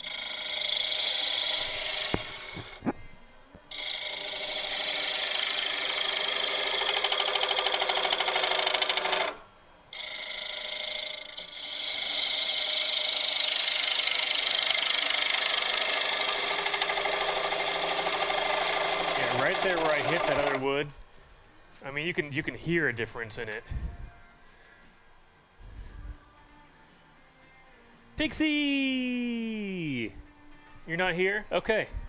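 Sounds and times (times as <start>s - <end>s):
lathe gouge scraping wood: 0.0s - 2.8s, 3.7s - 9.4s, 10.0s - 20.6s.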